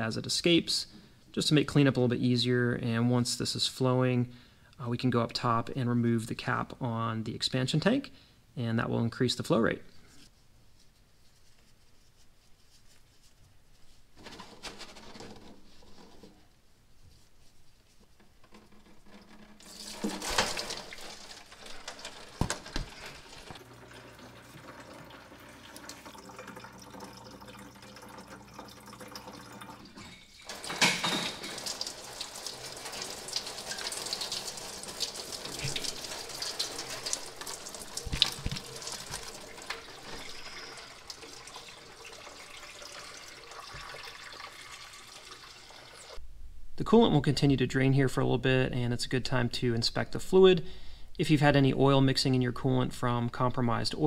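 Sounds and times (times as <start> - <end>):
liquid splashing into a jug: 19.6 - 45.6
plastic knocks: 22.3 - 23.0.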